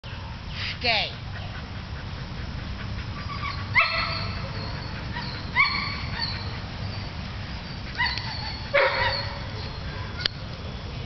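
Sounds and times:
dog yelping whines: 0:03.1 - 0:10.3.

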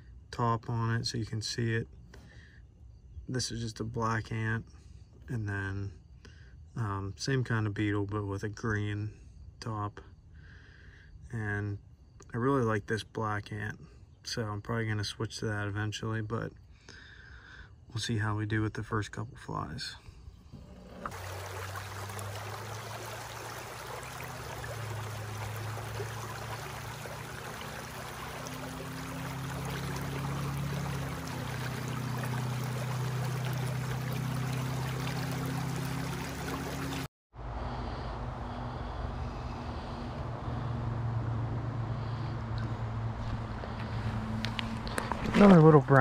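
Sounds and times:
mountain stream running: 0:20.2 - 0:37.1, 0:42.0 - 0:46.0.

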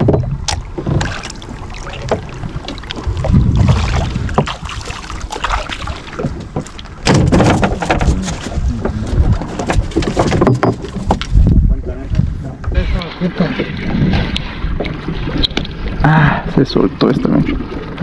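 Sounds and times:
knocks from boat: 0:00.0 - 0:01.2, 0:02.0 - 0:04.7, 0:06.1 - 0:11.6
water lapping against boat hull: 0:00.0 - 0:18.0
wind on microphone: 0:02.0 - 0:16.6.

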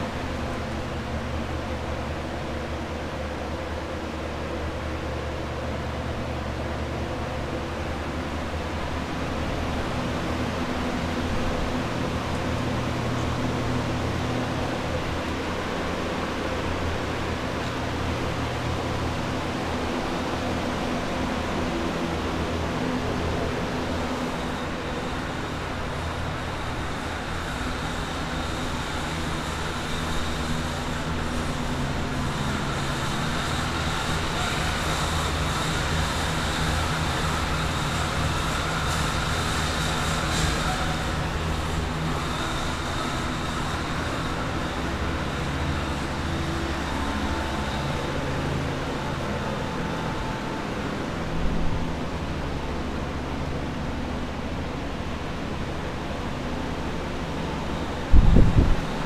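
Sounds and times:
blower fans rushing air: 0:00.0 - 0:59.0.

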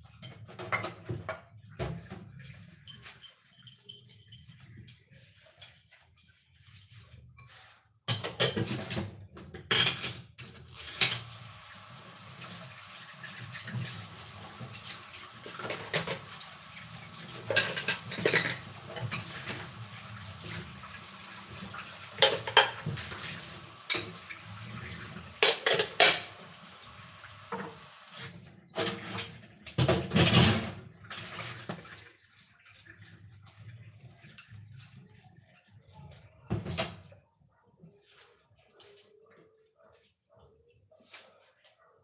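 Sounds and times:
household items clinking: 0:17.3 - 0:20.9.

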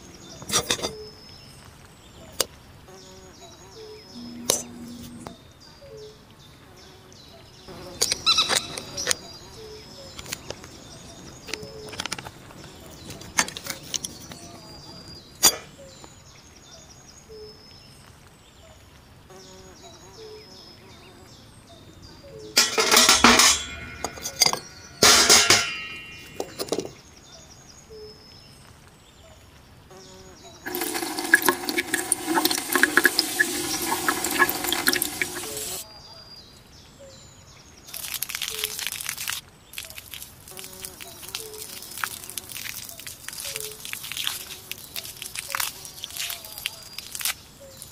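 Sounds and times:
metal parts clattering into a basin: 0:22.6 - 0:27.0
liquid pouring into a basin: 0:30.6 - 0:35.8, 0:37.9 - 0:47.3.

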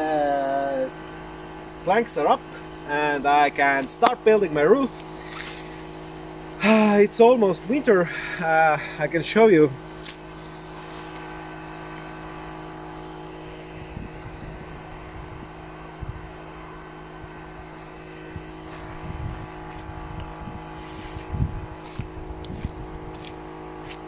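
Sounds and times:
engine-like hum: 0:00.0 - 0:24.0
wind buffeting microphone: 0:13.8 - 0:16.4, 0:18.2 - 0:23.4.

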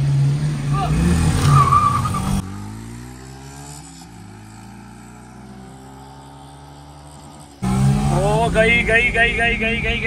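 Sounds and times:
engine accelerating hard: 0:05.6 - 0:10.0.

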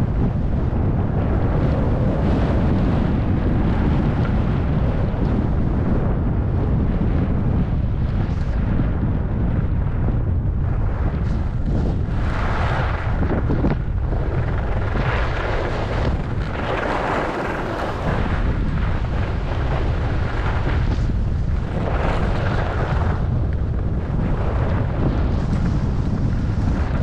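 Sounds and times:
wind rumbling on microphone: 0:00.0 - 0:27.0
skis sliding on snow: 0:11.0 - 0:13.4, 0:14.2 - 0:23.2.

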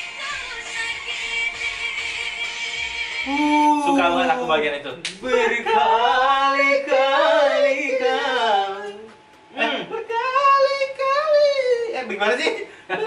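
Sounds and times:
person singing: 0:00.0 - 0:04.2.

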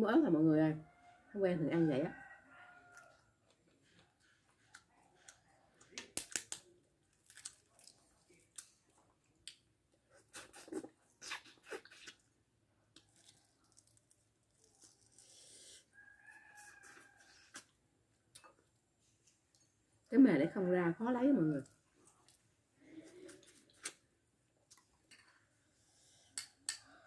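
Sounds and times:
chewing: 0:02.6 - 0:06.0, 0:07.1 - 0:12.3, 0:12.9 - 0:15.5, 0:21.6 - 0:24.0
eggshell cracking: 0:05.9 - 0:07.7.

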